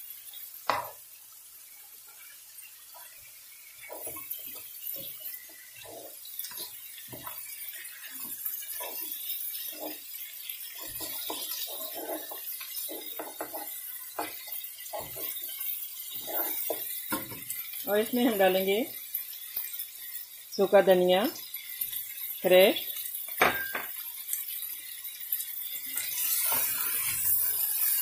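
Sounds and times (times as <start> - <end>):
meat sizzling in a pan: 0.0 - 28.0
wooden spatula scraping a pan: 2.9 - 19.0, 25.9 - 28.0.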